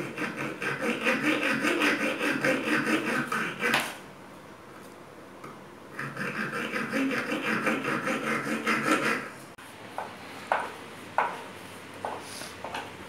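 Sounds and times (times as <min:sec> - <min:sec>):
hand tool rasping on wooden box: 0:00.0 - 0:03.9, 0:06.0 - 0:09.3.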